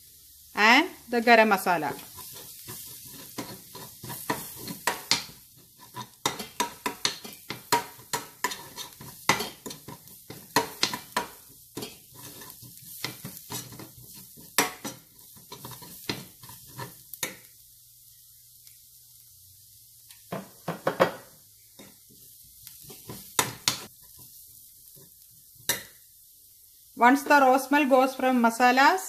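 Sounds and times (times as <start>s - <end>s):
faint sizzle: 0.0s - 29.0s
metal spoon scraping frying pan: 2.0s - 17.4s.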